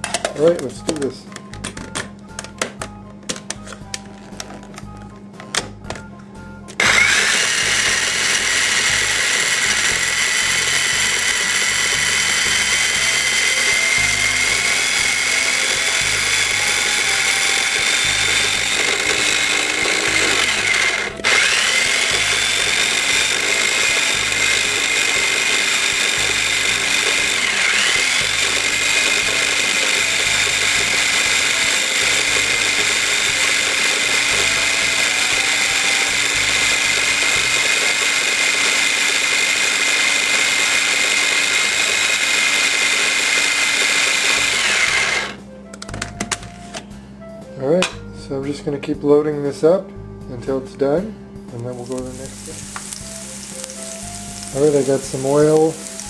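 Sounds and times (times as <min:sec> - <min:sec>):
electric chopper motor whining: 0:06.8 - 0:45.4.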